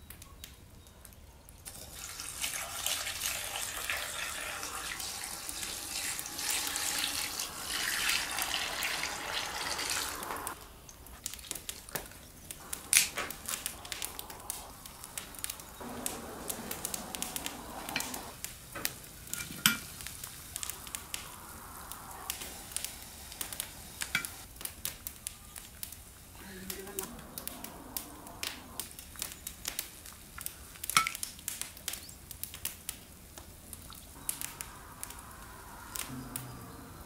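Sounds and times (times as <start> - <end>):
wood fire crackling and popping: 0.0 - 37.0
pot boiling: 1.6 - 37.0
water pouring into iron pot: 1.7 - 10.6.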